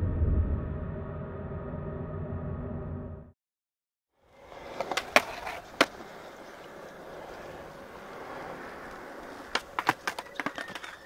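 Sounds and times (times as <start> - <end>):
skateboard wheels rolling on concrete: 4.2 - 11.0
skateboard clacks: 4.4 - 11.0.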